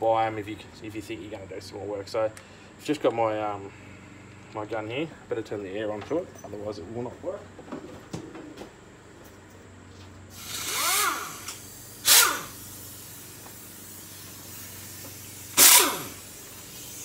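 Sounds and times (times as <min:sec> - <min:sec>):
air gun motor whirring: 0:10.3 - 0:17.0
compressed air hiss: 0:10.3 - 0:17.0.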